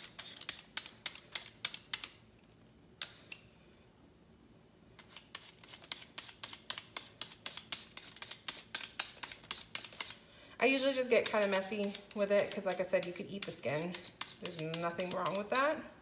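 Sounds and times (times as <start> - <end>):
peeler scraping potato skin: 0.0 - 2.2, 5.0 - 10.2, 11.0 - 15.8.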